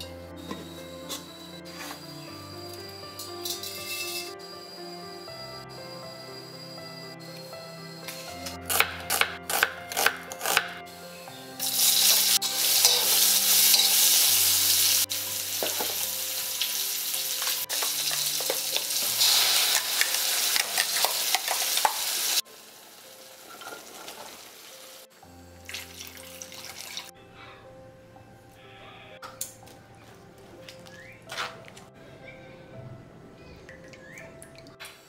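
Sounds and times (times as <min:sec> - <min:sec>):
spoon stirring in metal pan: 0:03.4 - 0:04.3, 0:17.4 - 0:22.1
onions sizzling in hot oil: 0:11.6 - 0:25.0.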